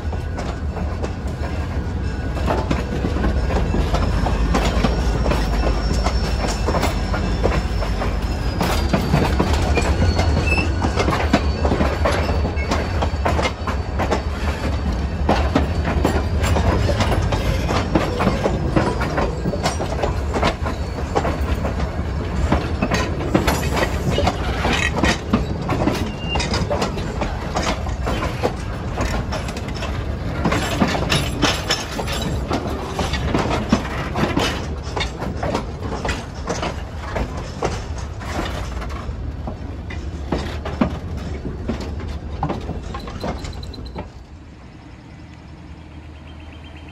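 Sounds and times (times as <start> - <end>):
diesel railcar engine rumble: 0.0 - 46.9
wheels clicking on track: 0.0 - 46.9.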